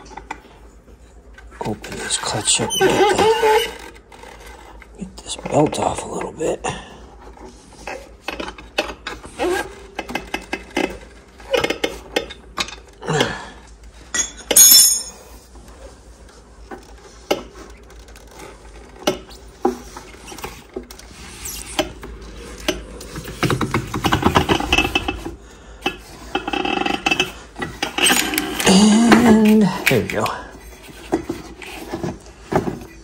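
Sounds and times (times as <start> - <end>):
metal tool clinking and knocking: 14.1 - 15.4.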